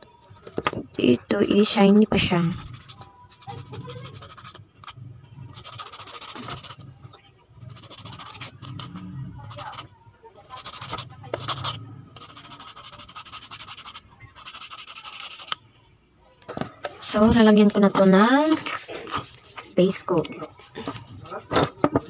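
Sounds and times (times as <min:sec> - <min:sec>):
nail file rasping: 0:01.9 - 0:06.8, 0:07.7 - 0:09.8, 0:10.5 - 0:15.6.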